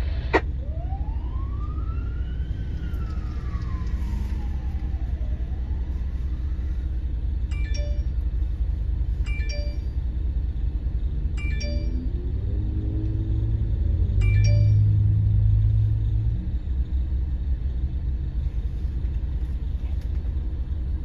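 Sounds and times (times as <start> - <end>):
emergency vehicle siren wailing: 0.0 - 8.6
steady low rumble: 0.0 - 21.0
short electronic chime: 7.5 - 8.2, 11.4 - 12.1, 14.2 - 15.0.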